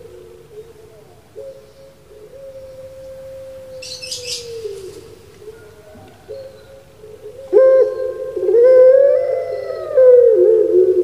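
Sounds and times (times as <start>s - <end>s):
dove cooing: 0.0s - 11.0s.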